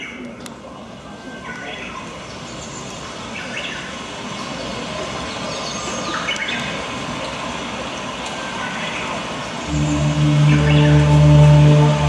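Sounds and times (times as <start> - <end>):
steady hiss of rain: 0.8 - 10.3.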